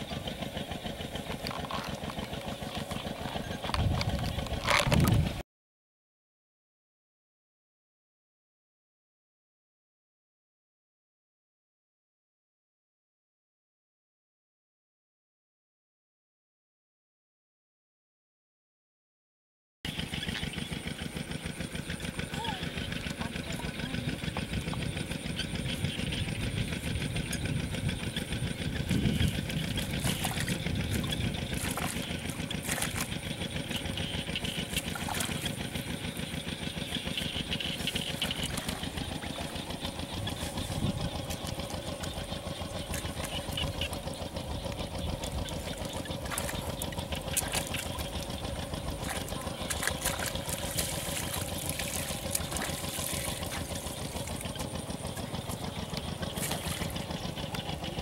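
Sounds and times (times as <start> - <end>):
small engine running: 0.0 - 5.4, 19.9 - 58.0.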